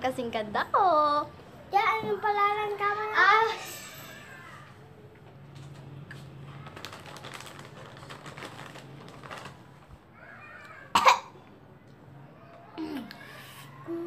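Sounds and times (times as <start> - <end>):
chips crunching: 6.5 - 9.7.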